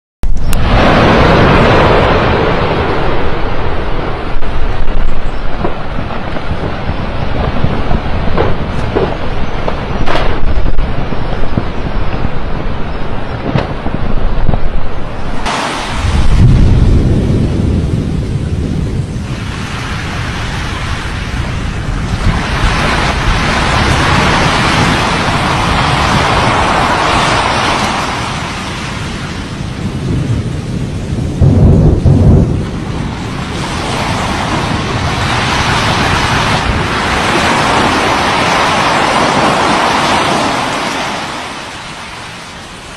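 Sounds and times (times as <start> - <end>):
volcano rushing roar: 0.3 - 42.9
deep boom: 0.4 - 12.3, 13.4 - 19.5, 31.3 - 32.9.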